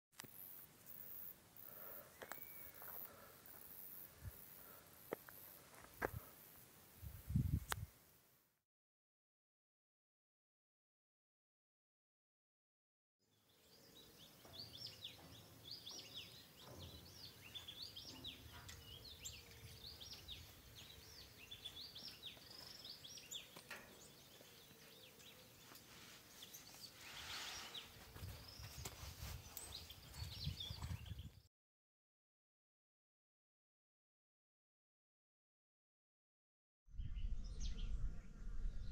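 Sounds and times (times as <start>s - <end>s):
small birds chirping: 0.2s - 6.6s, 13.3s - 31.5s
low rumble: 36.9s - 38.9s.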